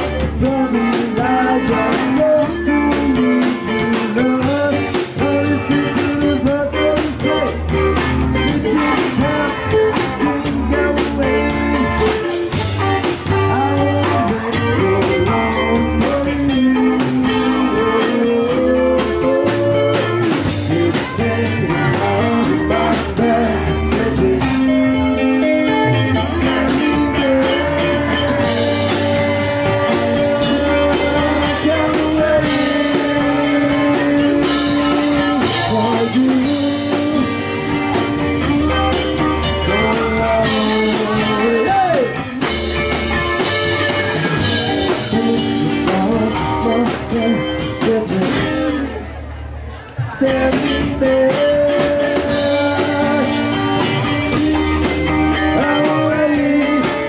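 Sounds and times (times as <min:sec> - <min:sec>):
bass and drums: 0:00.0 - 0:57.0
electric guitar bent notes: 0:00.0 - 0:57.0
person singing: 0:00.0 - 0:57.0.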